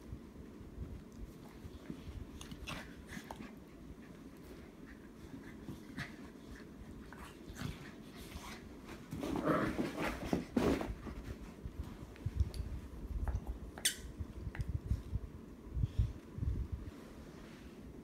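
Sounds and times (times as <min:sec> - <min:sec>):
dogs scuffling and mouthing: 0:00.8 - 0:15.2.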